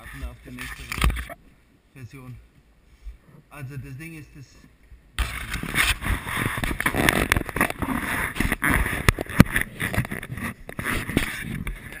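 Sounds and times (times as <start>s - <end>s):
camera handling rubbing and rustling: 0.0s - 1.4s, 5.2s - 12.0s.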